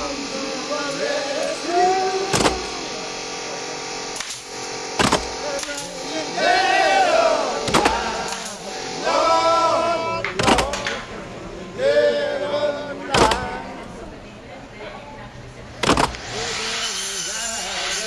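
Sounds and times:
nail gun shots: 0:02.3 - 0:02.7, 0:05.0 - 0:05.9, 0:07.7 - 0:08.6, 0:10.4 - 0:11.0, 0:13.1 - 0:13.5, 0:15.8 - 0:16.3.

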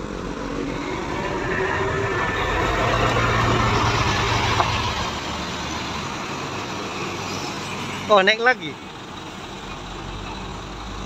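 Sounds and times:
coach engine moving off: 0:00.0 - 0:07.6.

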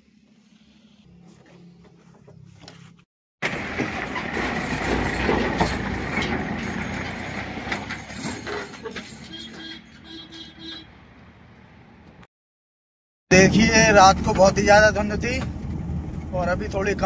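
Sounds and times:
truck engine running: 0:03.4 - 0:09.7.

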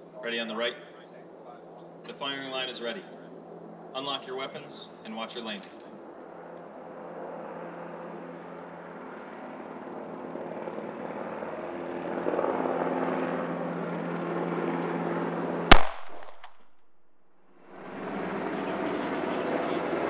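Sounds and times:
pistol shot: 0:15.7 - 0:17.0.

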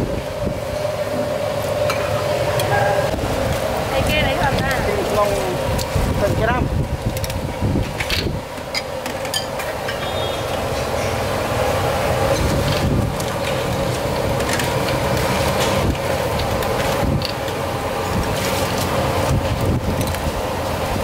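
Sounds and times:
cooking station low rumble and hum: 0:00.0 - 0:21.0
utensils clinking and knocking: 0:08.0 - 0:11.2.

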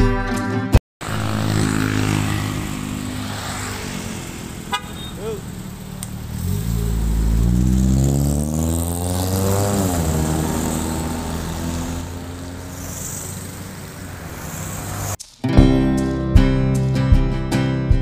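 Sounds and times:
car exhaust accelerating: 0:01.0 - 0:15.2.

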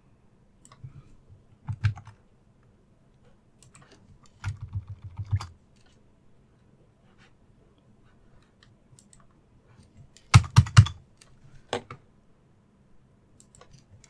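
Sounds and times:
keyboard keystrokes: 0:01.7 - 0:02.2.

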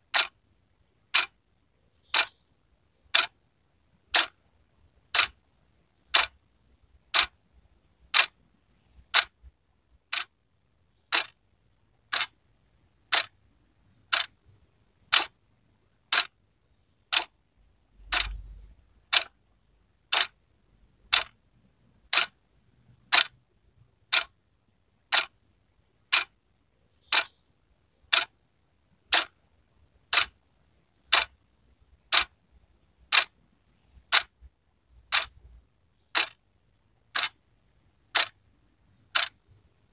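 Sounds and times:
wall clock ticking: 0:00.0 - 0:00.4, 0:01.0 - 0:01.4, 0:02.0 - 0:02.4, 0:03.1 - 0:03.4, 0:04.0 - 0:04.4, 0:05.0 - 0:05.4, 0:06.0 - 0:07.4, 0:08.1 - 0:08.4, 0:09.0 - 0:10.4, 0:11.0 - 0:11.4, 0:12.0 - 0:12.4, 0:13.0 - 0:15.4, 0:16.0 - 0:16.4, 0:17.1 - 0:17.4, 0:18.0 - 0:19.4, 0:20.0 - 0:20.4, 0:21.0 - 0:21.4, 0:22.0 - 0:22.4, 0:23.0 - 0:23.4, 0:24.1 - 0:24.4, 0:25.0 - 0:25.4, 0:26.1 - 0:26.4, 0:27.0 - 0:27.4, 0:28.0 - 0:28.4, 0:29.0 - 0:29.4, 0:30.0 - 0:32.4, 0:33.0 - 0:36.5, 0:37.1 - 0:37.4, 0:38.1 - 0:38.4, 0:39.0 - 0:39.6.

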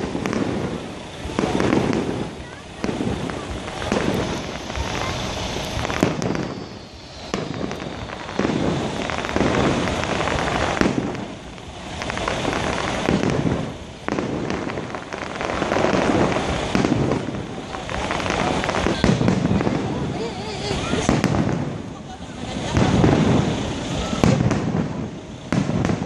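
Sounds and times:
fireworks bursting and crackling: 0:00.0 - 0:26.0.

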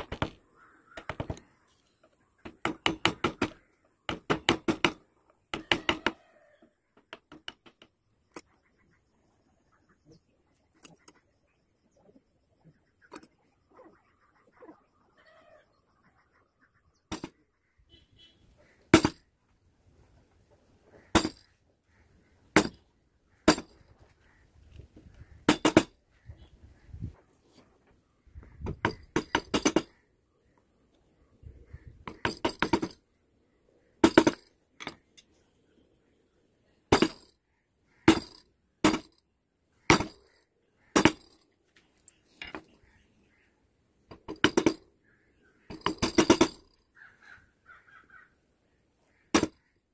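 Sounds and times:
chisel striking wood: 0:02.4 - 0:06.2.

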